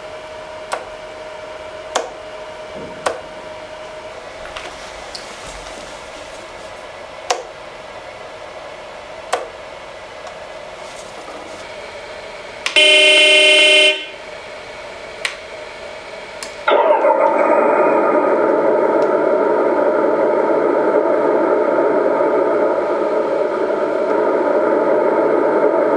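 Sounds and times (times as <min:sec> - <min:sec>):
faint steady hum: 0:00.0 - 0:25.9
simulated diesel engine: 0:00.0 - 0:25.9
excavator horn blast: 0:12.6 - 0:14.3.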